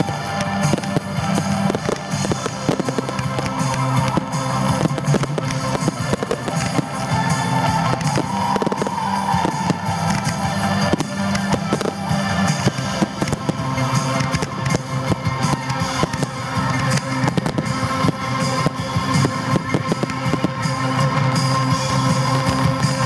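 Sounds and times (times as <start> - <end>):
fireworks bangs and crackles: 0.0 - 23.0
music: 0.0 - 23.0.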